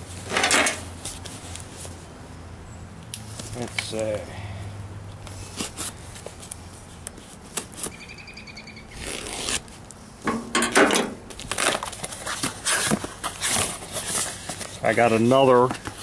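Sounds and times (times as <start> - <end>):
cardboard and paper rustling: 5.3 - 8.0, 11.3 - 16.0.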